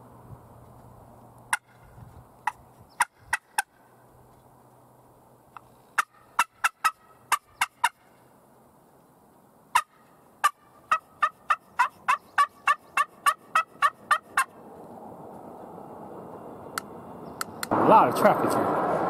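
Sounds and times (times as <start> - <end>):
passing traffic: 0.0 - 19.0
turkey call yelps: 2.4 - 3.8, 6.0 - 8.1, 9.7 - 14.5.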